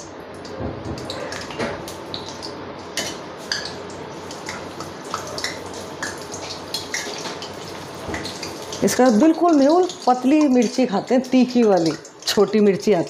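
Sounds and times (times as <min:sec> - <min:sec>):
oil popping and crackling: 0:00.4 - 0:13.0
chilies deep-frying in hot oil: 0:01.1 - 0:13.0.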